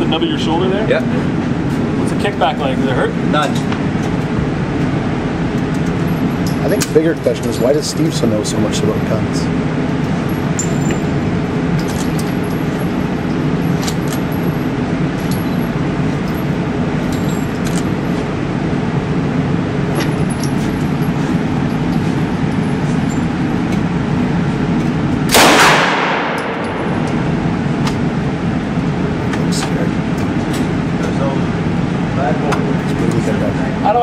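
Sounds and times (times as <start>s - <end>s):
ventilation hum: 0.0s - 34.0s
faint gunshot cracks: 25.3s - 26.6s
loud echoing gunshot: 25.3s - 27.4s.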